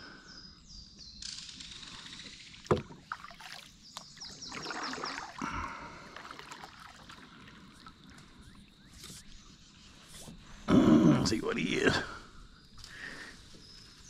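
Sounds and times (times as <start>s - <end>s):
paddle splashing in water: 2.6s - 9.4s
paddle knocks: 2.7s - 3.6s.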